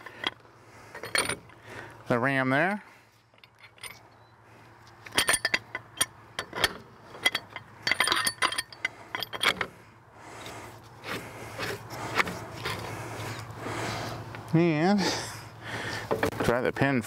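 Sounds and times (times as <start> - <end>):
wrench clinking against metal rod: 5.1 - 9.7.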